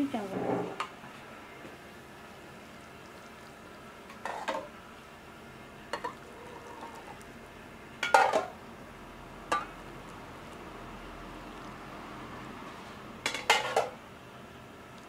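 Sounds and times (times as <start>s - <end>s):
metal pots clanking: 4.1s - 4.7s, 5.9s - 7.2s, 8.0s - 8.6s, 13.2s - 14.0s.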